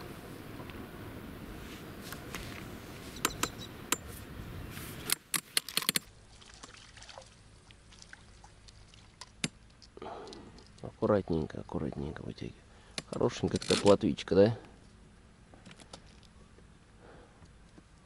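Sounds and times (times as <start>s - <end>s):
sharp clicks: 3.2s - 4.0s, 5.0s - 6.1s
water trickling and splashing: 6.1s - 10.8s.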